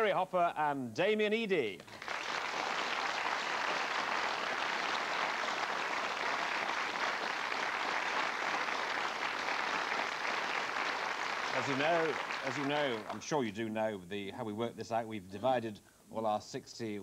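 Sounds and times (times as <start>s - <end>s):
audience applauding: 1.8s - 13.3s.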